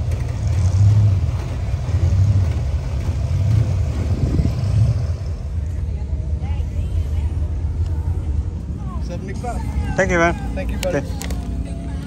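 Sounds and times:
truck engine low rumble: 0.0 - 12.0.

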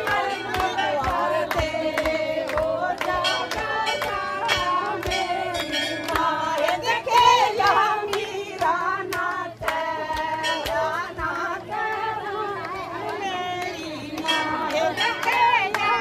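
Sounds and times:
hand claps in steady beat: 0.0 - 16.0
women singing devotional song: 0.0 - 16.0.

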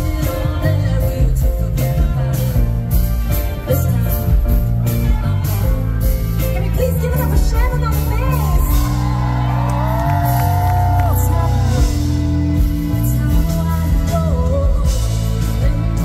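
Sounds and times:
heavy bass line: 0.0 - 16.0
live pop band playing: 0.0 - 16.0
woman singing lead vocal: 0.0 - 16.0.

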